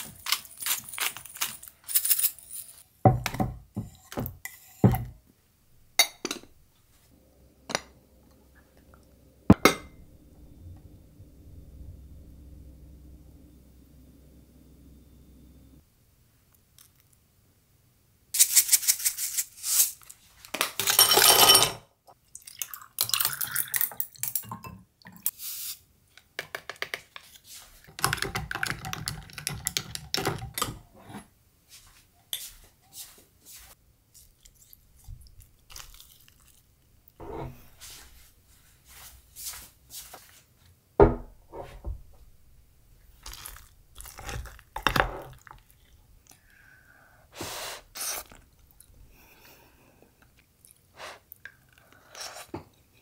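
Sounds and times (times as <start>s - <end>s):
ice clinking in glass: 20.8s - 21.8s.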